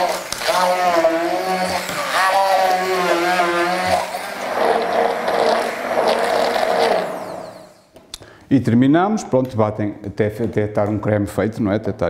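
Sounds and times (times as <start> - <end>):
immersion blender running: 0.0 - 7.9.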